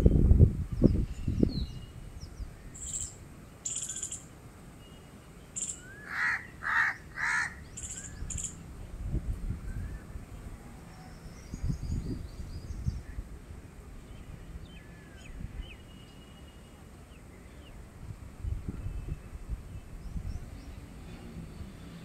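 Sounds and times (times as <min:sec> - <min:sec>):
small birds chirping: 0:00.7 - 0:06.6, 0:07.4 - 0:08.6
crow cawing: 0:06.0 - 0:07.6.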